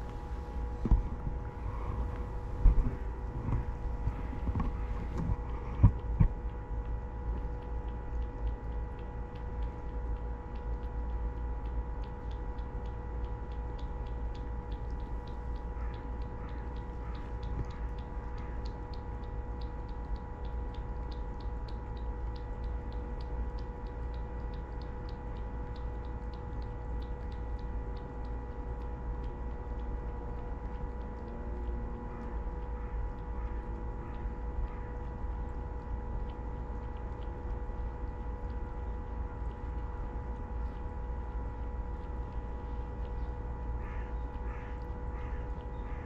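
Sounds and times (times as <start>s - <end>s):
low rumble: 0.0s - 8.7s
constant hum: 0.0s - 46.0s
steady ticking: 5.4s - 46.0s.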